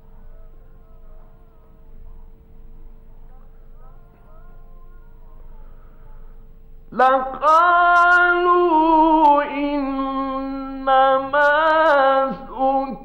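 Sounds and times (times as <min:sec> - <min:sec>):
man chanting melodically: 0:06.9 - 0:13.0.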